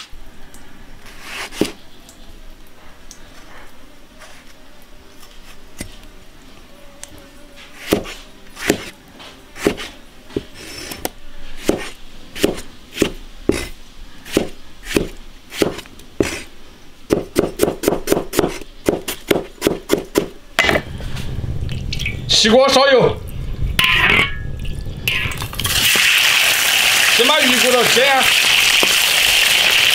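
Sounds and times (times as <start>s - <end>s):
cleaver chopping on cutting board: 7.8s - 8.9s, 9.6s - 9.9s, 11.6s - 13.7s, 14.3s - 16.5s, 17.1s - 20.3s.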